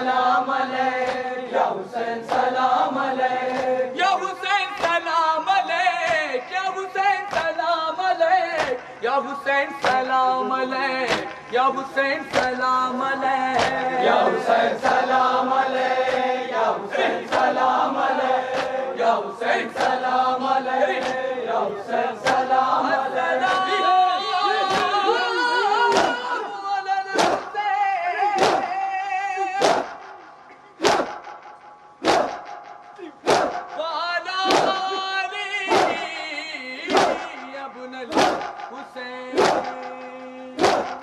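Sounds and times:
many voices chanting a lament: 0:00.0 - 0:41.0
hands slapping chests: 0:01.0 - 0:01.3, 0:02.2 - 0:05.2, 0:07.2 - 0:07.7, 0:08.5 - 0:09.0, 0:09.8 - 0:10.2, 0:10.9 - 0:12.7, 0:13.5 - 0:13.9, 0:14.8 - 0:19.0, 0:19.6 - 0:20.2, 0:20.8 - 0:21.4, 0:22.2 - 0:23.7, 0:24.6 - 0:25.0, 0:25.9 - 0:26.3, 0:27.1 - 0:27.6, 0:28.3 - 0:28.7, 0:29.4 - 0:35.0, 0:35.7 - 0:36.1, 0:36.8 - 0:41.0.

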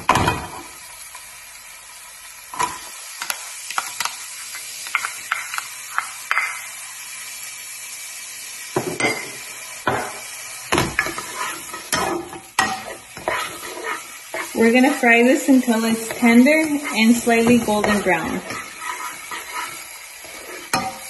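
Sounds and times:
vegetables sizzling in oil: 0:00.0 - 0:21.0
plastic spoon scraping a pan: 0:11.0 - 0:14.9, 0:15.8 - 0:21.0.

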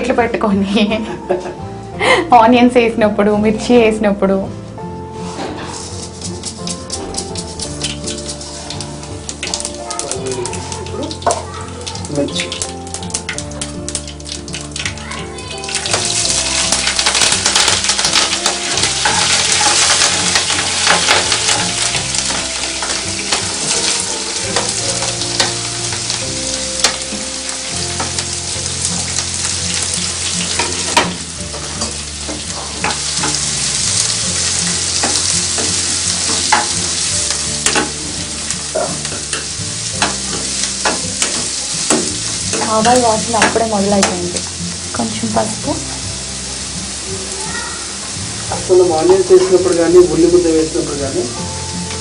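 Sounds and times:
food sizzling in hot oil: 0:02.0 - 0:52.0
spoon stirring in pan: 0:15.5 - 0:44.6.

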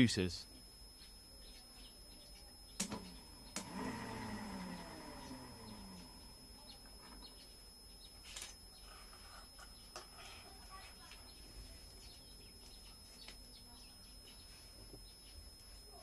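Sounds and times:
sharp clicks: 0:02.8 - 0:03.7
small motor whine coasting down: 0:02.8 - 0:07.9.

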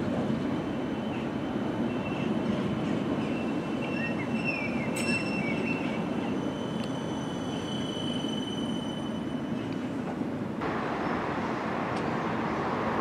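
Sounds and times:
tram wheels rumbling on rail: 0:00.0 - 0:13.0
wheel squeals: 0:03.2 - 0:09.7.

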